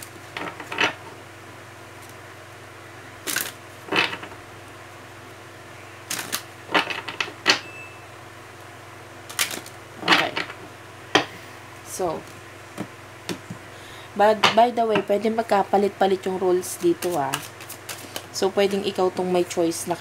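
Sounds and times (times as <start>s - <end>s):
cards being shuffled: 3.2s - 4.4s, 6.1s - 7.3s, 9.3s - 10.5s, 16.6s - 19.0s.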